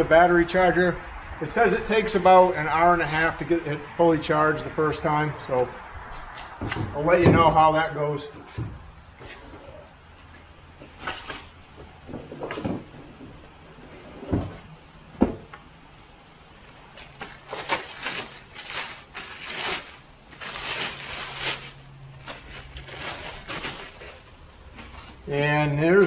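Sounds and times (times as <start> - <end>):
plastic bag crinkling: 17.4 - 24.9.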